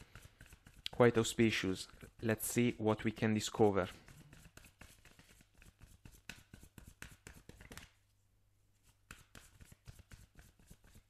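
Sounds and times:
cards being shuffled: 0:04.0 - 0:08.0, 0:08.8 - 0:11.0.

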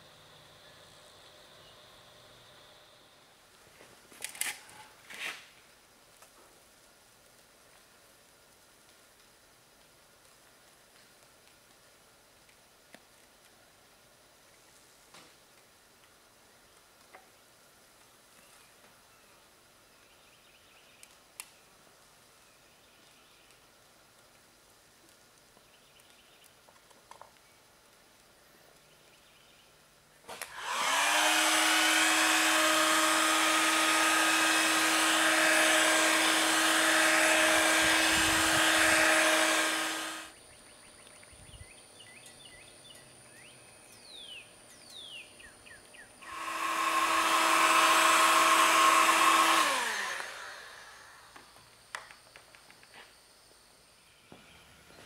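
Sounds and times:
heat gun fan humming: 0:30.3 - 0:40.4, 0:46.2 - 0:52.1.

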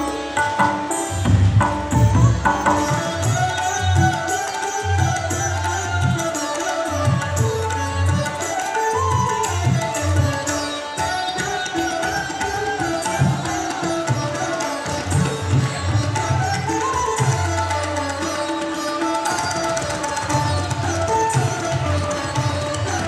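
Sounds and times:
instrumental dance music: 0:00.0 - 0:23.0.

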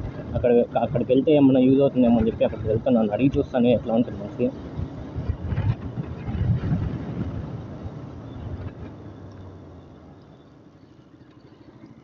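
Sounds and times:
wind rushing on microphone: 0:00.0 - 0:09.3.

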